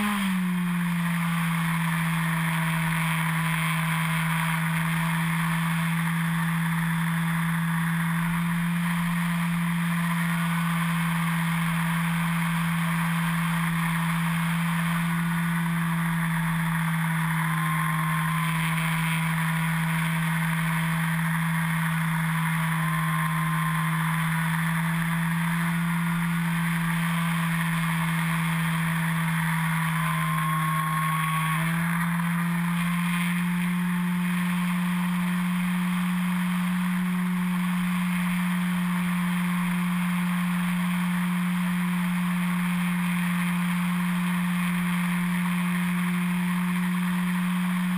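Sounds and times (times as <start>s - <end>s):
electric motor and propeller droning: 0.0s - 47.9s.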